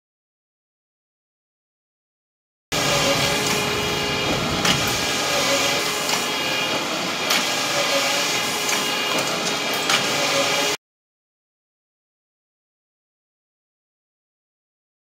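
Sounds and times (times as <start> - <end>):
machinery whirring: 2.7 - 10.8
sharp machine clacks: 2.8 - 10.7.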